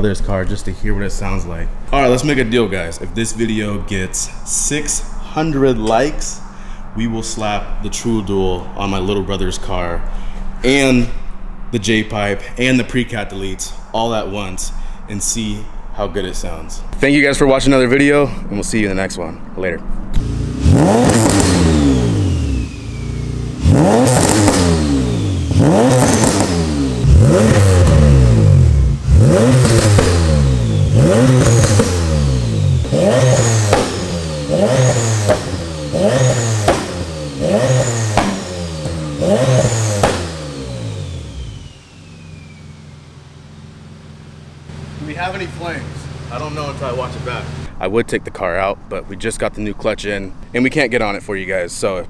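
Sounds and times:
car engine revving: 20.1s - 47.7s
turbo whistle: 22.6s - 23.4s, 42.0s - 43.1s.

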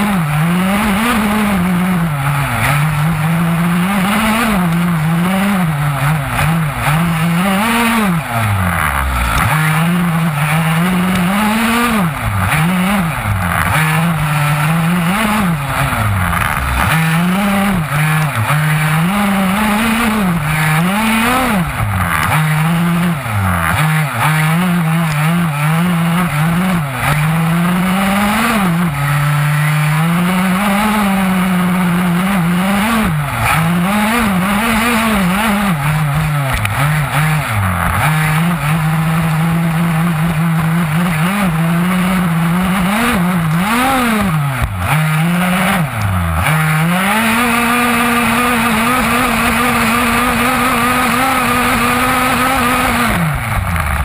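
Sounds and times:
model buggy engine revving: 0.0s - 54.0s.

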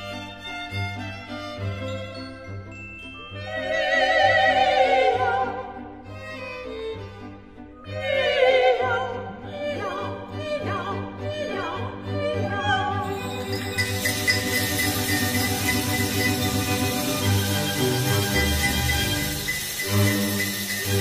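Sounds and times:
orchestral accompaniment: 0.0s - 21.0s
operatic singing with vibrato: 3.3s - 6.0s, 7.8s - 21.0s.

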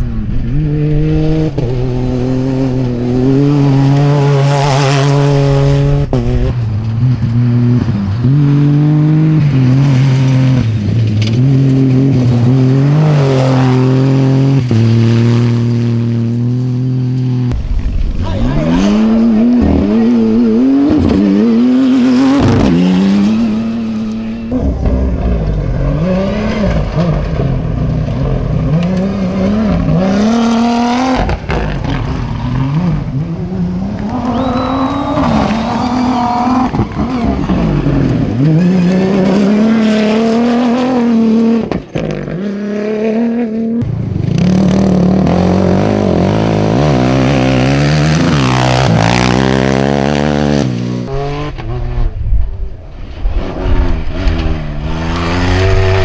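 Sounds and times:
rally cars revving past: 0.0s - 18.0s, 18.6s - 56.0s
quad bike engine revving: 32.6s - 52.1s, 53.6s - 56.0s.

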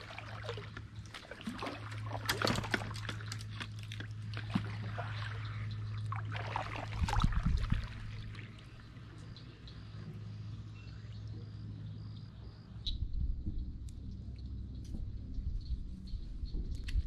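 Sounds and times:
paddle splashing in water: 0.0s - 8.8s
water dripping off paddle: 0.0s - 9.4s
steady low hum: 0.0s - 17.0s
low rumble: 1.8s - 17.0s.

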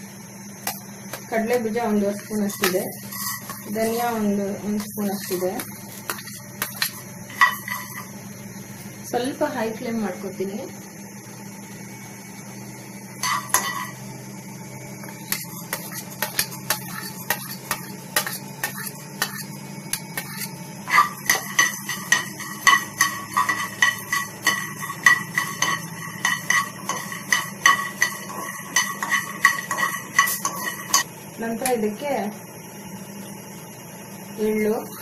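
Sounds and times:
steady low hum: 0.0s - 35.0s
spoon scraping in a pan: 2.1s - 8.2s, 13.2s - 14.0s, 15.1s - 31.1s
spoon clinking against a pan: 15.3s - 31.1s.

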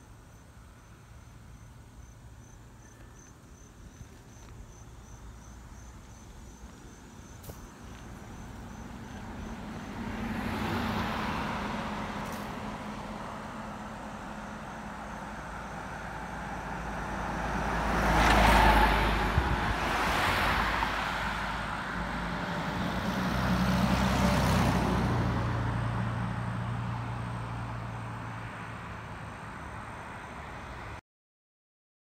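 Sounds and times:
vehicles passing: 0.0s - 31.0s
tyre and engine noise: 0.9s - 31.0s.

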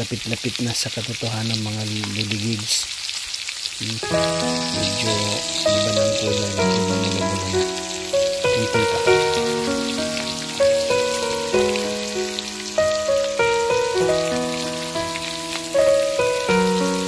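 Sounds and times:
pork sizzling and crackling: 0.0s - 17.0s
instrumental background music: 4.0s - 17.0s.

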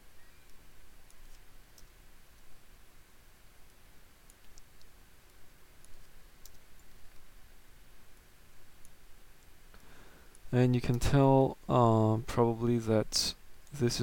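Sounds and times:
low steady hiss: 0.0s - 14.0s
computer mouse clicks: 0.4s - 2.5s, 3.7s - 7.3s.

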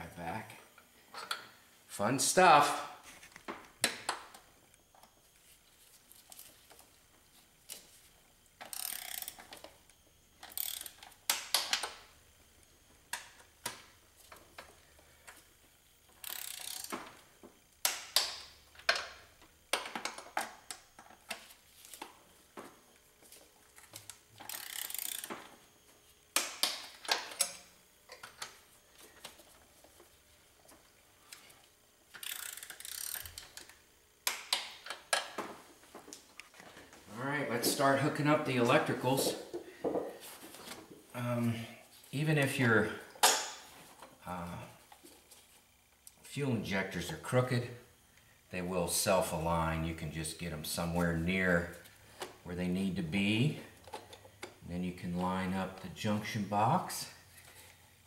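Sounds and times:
hand ratchet clicking: 8.6s - 9.7s, 10.4s - 12.0s, 16.2s - 17.1s, 24.0s - 25.4s, 32.1s - 35.3s.

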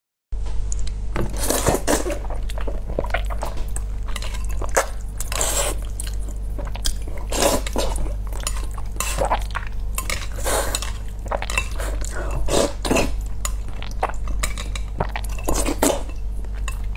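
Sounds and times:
steady low hum: 0.4s - 16.9s
person chewing: 0.8s - 16.9s
person slurping noodles: 4.8s - 5.9s, 7.2s - 8.2s, 10.3s - 13.2s, 15.1s - 16.1s.

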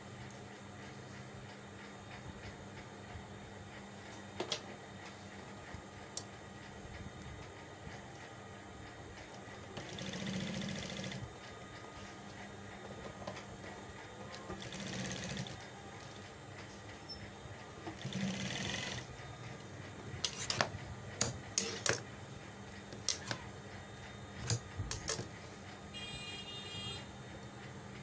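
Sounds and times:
sewing machine running: 9.5s - 11.3s, 14.4s - 16.2s, 17.9s - 19.2s.

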